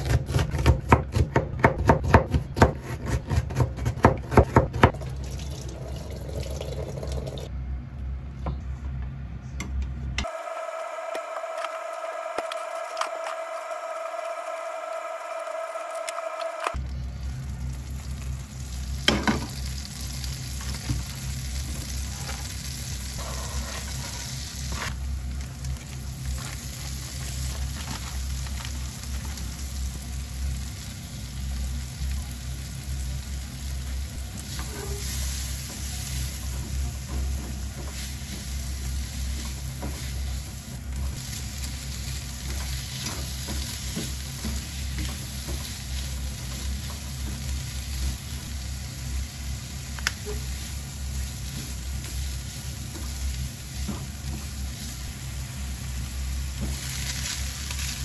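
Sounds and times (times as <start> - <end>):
food sizzling in a frying pan: 17.3 - 58.0.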